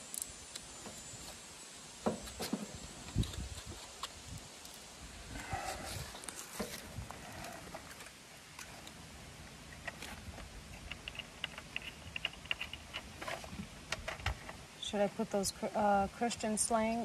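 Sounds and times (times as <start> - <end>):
light clicks and rustles: 9.7 - 14.6.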